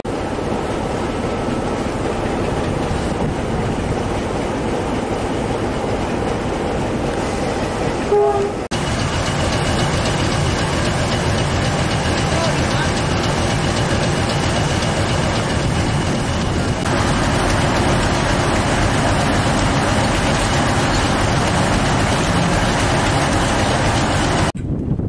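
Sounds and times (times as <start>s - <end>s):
diesel locomotive engine idling: 0.1s - 24.6s.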